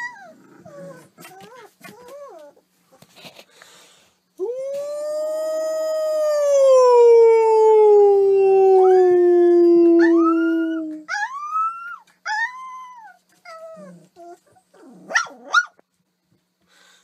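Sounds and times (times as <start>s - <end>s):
dog yowling: 0.0s - 2.6s, 8.3s - 15.8s
dog howling: 4.4s - 13.1s.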